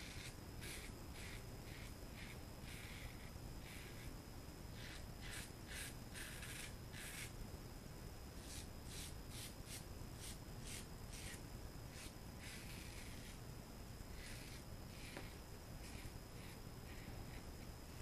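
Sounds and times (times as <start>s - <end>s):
razor scraping stubble: 4.8s - 7.3s, 8.4s - 13.4s, 14.1s - 17.5s.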